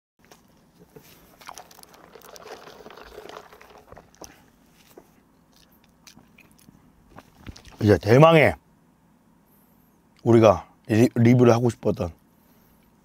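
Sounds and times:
person chewing toast: 0:01.0 - 0:07.8.

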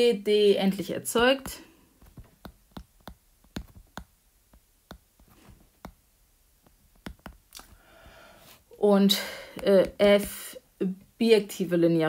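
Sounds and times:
stylus clicking on glass screen: 0:01.4 - 0:06.0, 0:06.6 - 0:07.8.

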